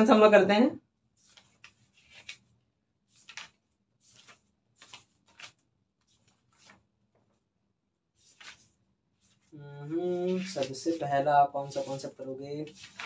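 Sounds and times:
paper rustling and scraping: 0:01.2 - 0:02.5, 0:03.1 - 0:07.3, 0:08.2 - 0:13.0.

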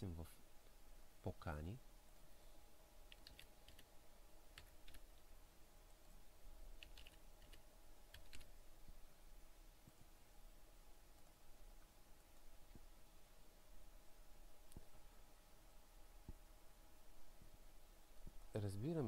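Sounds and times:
faint hum: 0:00.0 - 0:19.0
faint keyboard keystrokes: 0:03.1 - 0:03.9, 0:04.6 - 0:05.2, 0:06.8 - 0:08.5.

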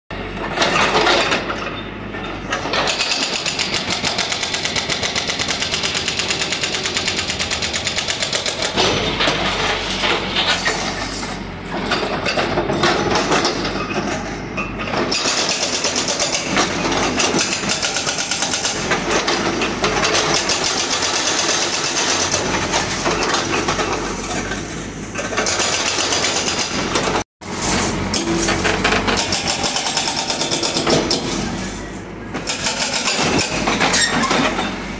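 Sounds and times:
hydraulic breaker hammering concrete: 0:02.5 - 0:10.9, 0:14.9 - 0:24.2, 0:25.2 - 0:27.2, 0:28.0 - 0:31.6, 0:32.3 - 0:34.7.

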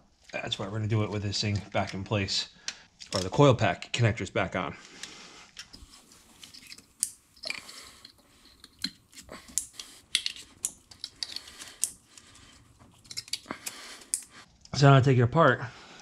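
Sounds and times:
plastic connectors clicking: 0:06.4 - 0:12.3, 0:13.0 - 0:14.3.

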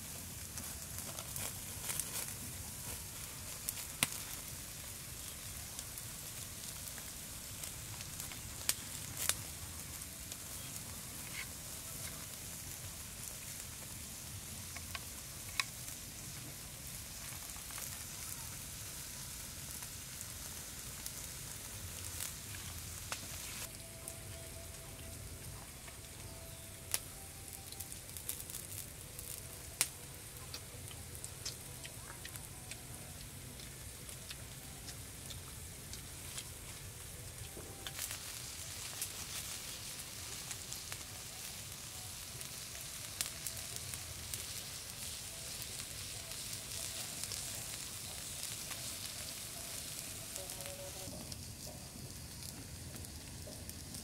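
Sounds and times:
meat sizzling on hot stone: 0:00.0 - 0:54.0
wood fire crackling and popping: 0:00.0 - 0:54.0.

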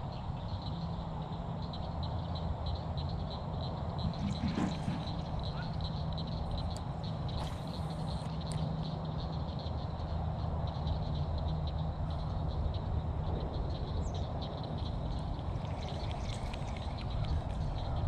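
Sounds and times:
steady low rumble: 0:03.7 - 0:08.4, 0:09.2 - 0:18.0.

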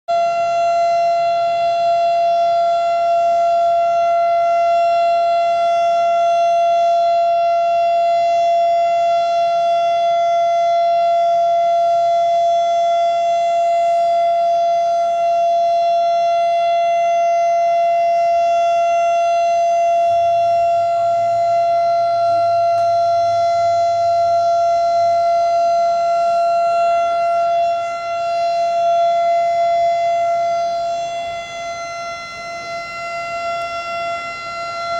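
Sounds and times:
warning siren steady tone: 0:00.0 - 0:34.9.

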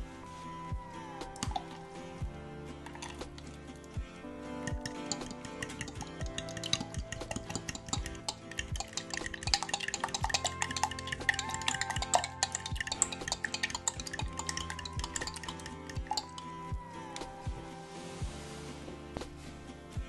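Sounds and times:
fork clicking against glass jug: 0:01.4 - 0:01.8, 0:04.6 - 0:16.5
liquid sloshing: 0:02.8 - 0:03.7, 0:04.6 - 0:16.6.

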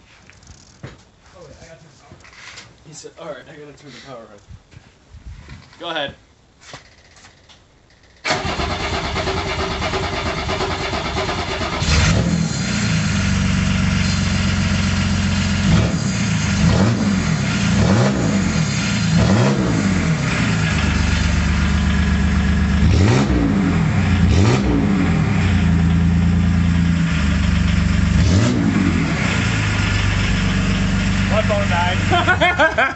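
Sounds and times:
diesel engine cranking: 0:08.1 - 0:32.9
diesel engine revving: 0:08.3 - 0:32.7.

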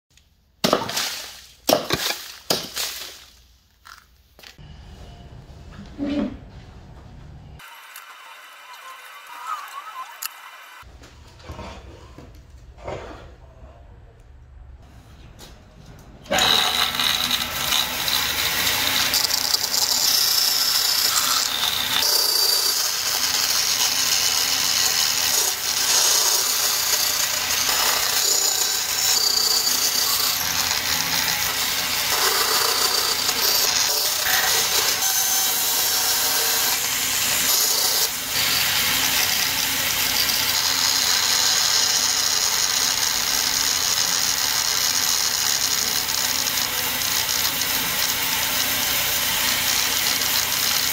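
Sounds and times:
bandsaw cutting plywood: 0:16.3 - 0:50.9.

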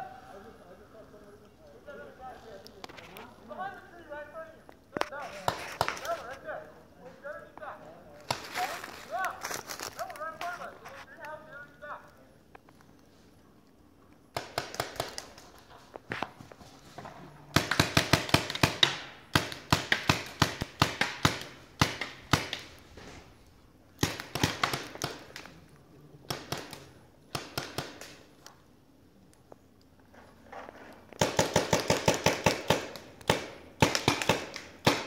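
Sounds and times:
paintball markers firing: 0:14.3 - 0:15.7, 0:17.5 - 0:22.8, 0:24.0 - 0:25.6, 0:26.3 - 0:28.6, 0:31.1 - 0:35.0.

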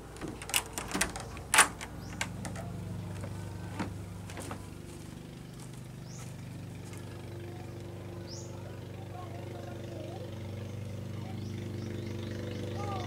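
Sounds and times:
door latch clicks and knocks: 0:00.0 - 0:04.5
steady low hum: 0:00.0 - 0:13.0.

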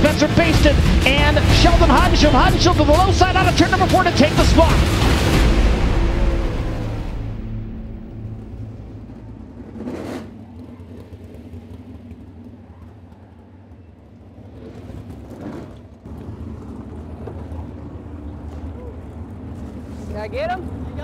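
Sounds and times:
rushing whoosh: 0:00.0 - 0:10.5
racing engines rumbling: 0:00.0 - 0:21.0.

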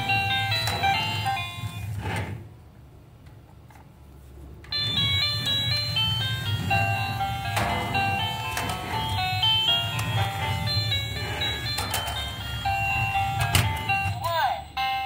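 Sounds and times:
toy motor humming: 0:04.7 - 0:14.3
toy beeping electronic jingle: 0:04.7 - 0:15.0.

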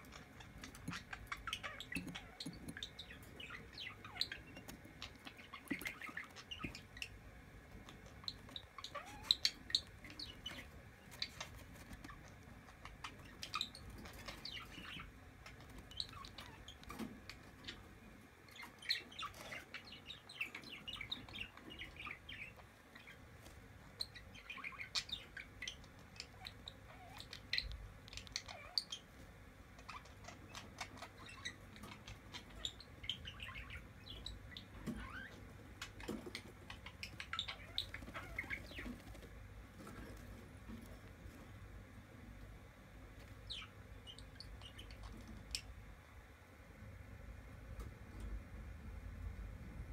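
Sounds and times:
chick peeping: 0:00.0 - 0:45.8.

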